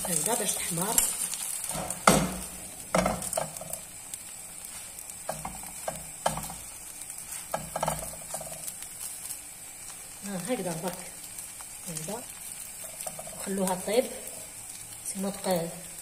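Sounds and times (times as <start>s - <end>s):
crepe sizzling in a pan: 0.0s - 16.0s
knocks and scrapes in a pan: 1.5s - 3.9s, 5.2s - 8.8s.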